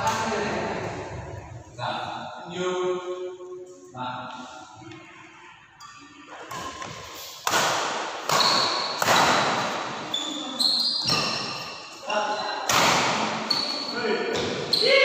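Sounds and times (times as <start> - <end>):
racquets hitting shuttlecock: 6.5 - 10.0, 12.7 - 13.4
shoes squeaking on court floor: 8.2 - 12.6, 13.4 - 15.0.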